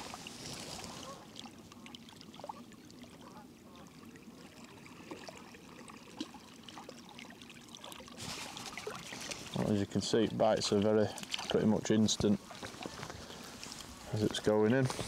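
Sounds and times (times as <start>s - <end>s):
water lapping at shore: 0.0s - 15.0s.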